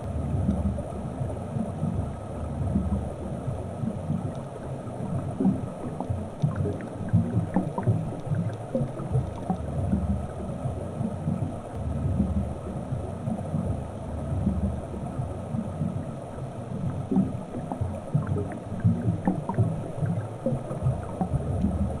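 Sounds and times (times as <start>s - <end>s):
underwater rumble of moving water: 0.0s - 22.0s
faint clicks: 3.8s - 10.2s.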